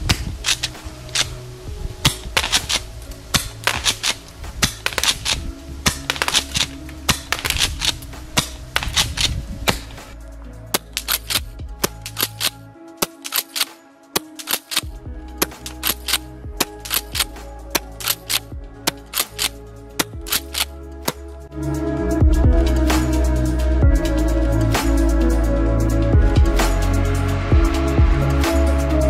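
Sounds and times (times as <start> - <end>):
background music: 0.0 - 29.0
shotgun pump racking: 2.1 - 2.8, 3.4 - 10.0, 10.8 - 21.2.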